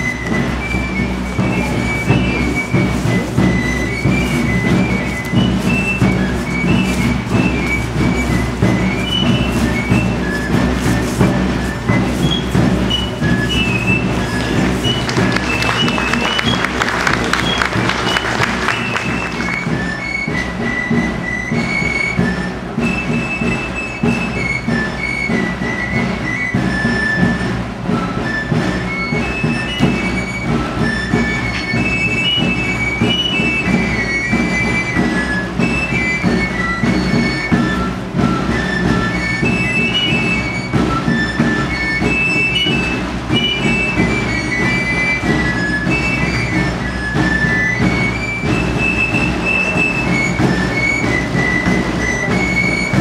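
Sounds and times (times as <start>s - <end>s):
drum beat: 0.0s - 53.0s.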